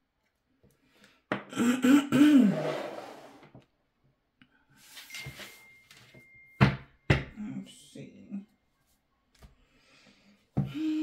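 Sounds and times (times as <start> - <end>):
person sighing: 10.6 - 11.0.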